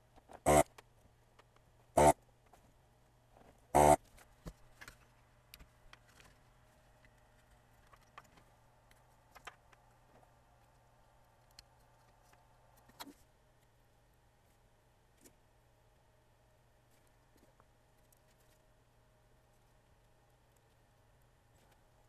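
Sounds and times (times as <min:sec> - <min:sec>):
faint low hum: 0:00.0 - 0:22.0
desoldering pump burst: 0:00.5 - 0:00.7, 0:02.0 - 0:02.2, 0:03.8 - 0:04.0.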